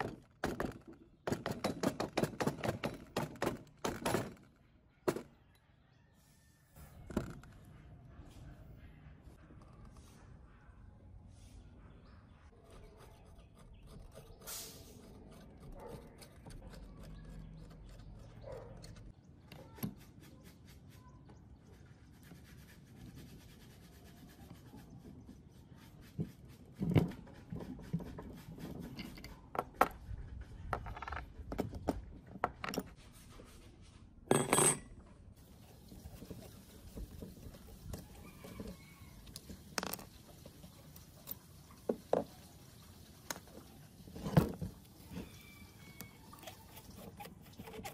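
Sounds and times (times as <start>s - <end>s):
metal tools clicking and scraping: 28.8s - 30.0s, 34.3s - 35.0s.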